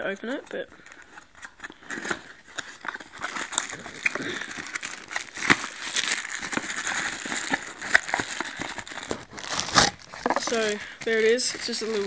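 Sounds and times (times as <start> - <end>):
cardboard rustling and crinkling: 0.2 - 12.0.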